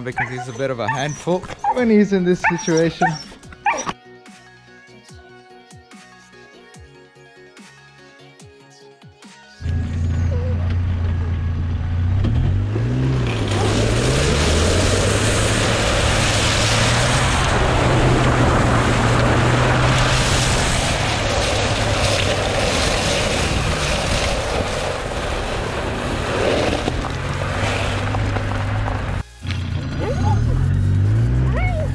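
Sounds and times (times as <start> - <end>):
water spraying off tyre: 12.9 - 29.8.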